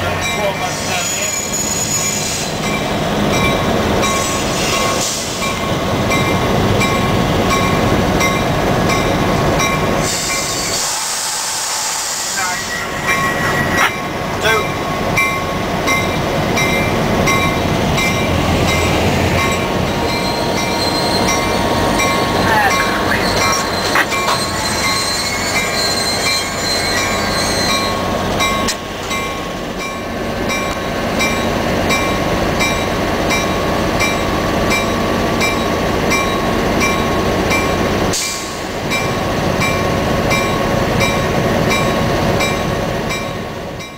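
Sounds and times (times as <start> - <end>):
diesel locomotive running: 0.0 - 43.9
wheel squeal on track: 0.9 - 2.5, 10.0 - 13.8, 20.1 - 21.5, 22.9 - 28.0.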